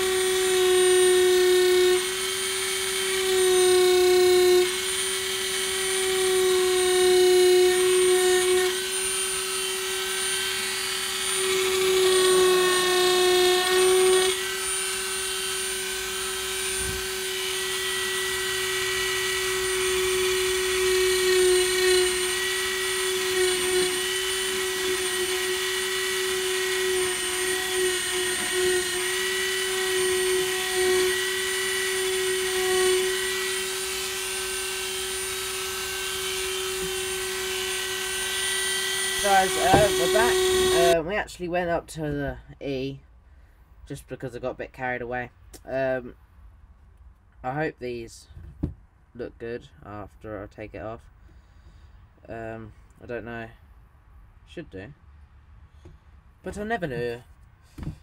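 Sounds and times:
rotary tool whining: 0:00.0 - 0:41.0.

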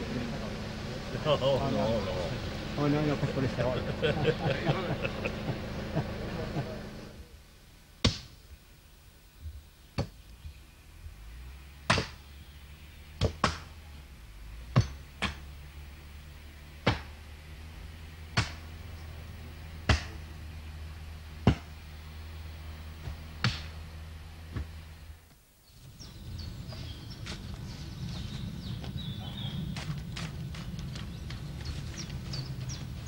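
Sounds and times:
tractor engine humming: 0:00.0 - 0:08.0, 0:08.6 - 0:33.0
sharp knocks of blows: 0:08.0 - 0:08.4, 0:11.9 - 0:12.2, 0:13.2 - 0:13.8, 0:14.7 - 0:15.5, 0:18.3 - 0:18.7, 0:19.8 - 0:20.2, 0:21.4 - 0:21.8, 0:23.0 - 0:23.8.

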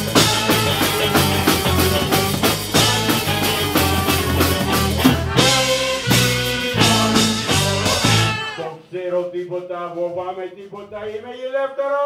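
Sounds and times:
live band playing: 0:00.0 - 0:08.7.

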